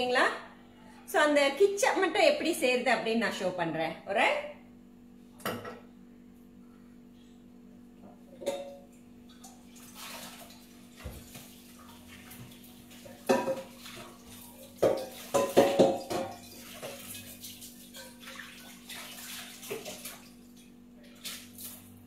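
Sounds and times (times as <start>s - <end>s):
dishes clinking in a sink: 5.4s - 5.9s, 8.3s - 10.3s, 12.3s - 19.0s
water running: 8.4s - 22.0s.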